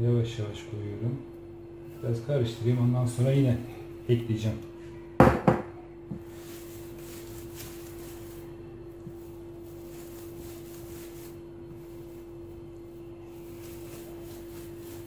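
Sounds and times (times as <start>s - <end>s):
steady low hum: 0.0s - 15.0s
hands kneading ground meat: 6.1s - 15.0s.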